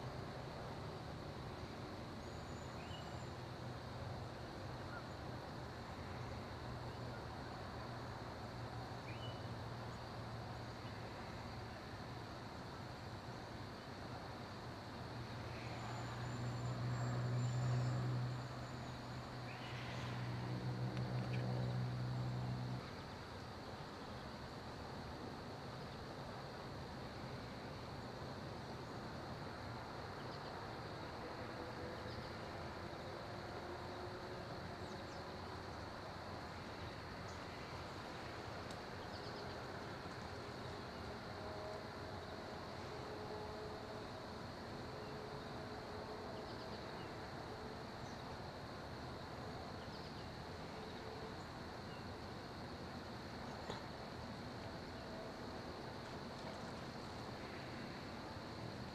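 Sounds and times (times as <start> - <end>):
faint high insect hum: 0.0 - 58.9
rural outdoor background hiss: 0.0 - 58.9.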